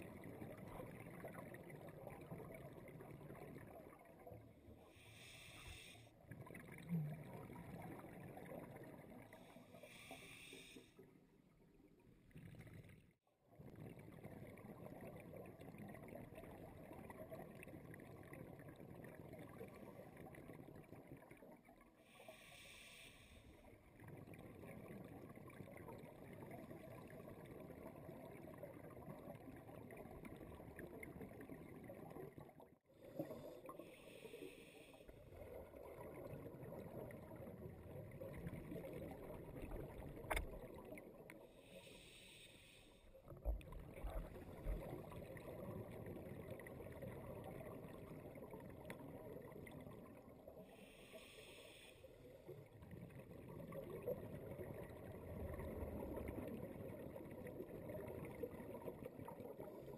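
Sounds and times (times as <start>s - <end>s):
diver breathing through regulator: 5.0s - 6.1s, 9.8s - 11.0s, 22.1s - 23.6s, 33.2s - 35.1s, 41.6s - 43.0s, 50.7s - 52.1s
rumble of exhaled bubbles: 6.2s - 9.7s, 23.6s - 41.7s, 43.1s - 51.0s, 52.2s - 59.9s.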